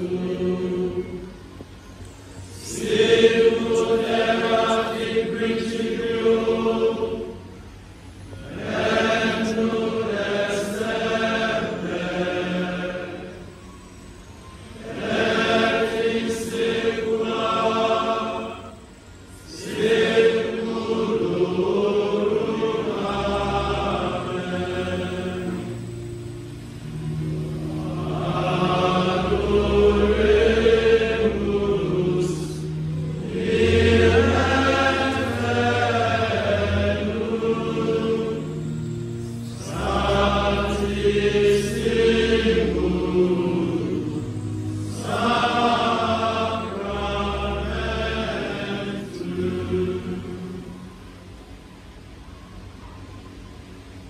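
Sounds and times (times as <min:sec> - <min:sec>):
group chanting a hymn: 0:00.0 - 0:01.6, 0:02.4 - 0:07.7, 0:08.3 - 0:13.7, 0:14.6 - 0:26.2, 0:26.8 - 0:51.0
sustained low accompaniment notes: 0:00.0 - 0:54.0.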